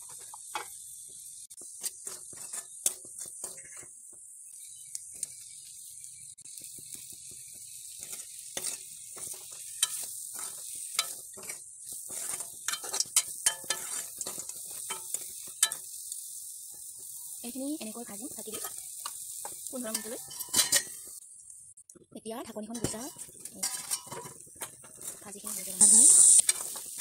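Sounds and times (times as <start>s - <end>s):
food sizzling in oil: 0.0s - 27.0s
ladle scraping metal pan: 1.8s - 3.9s, 8.0s - 15.8s, 19.4s - 21.2s, 22.8s - 27.0s.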